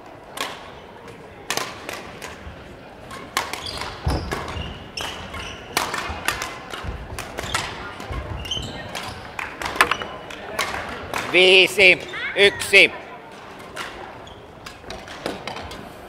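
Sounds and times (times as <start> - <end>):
racquets striking shuttlecock: 3.0 - 11.4.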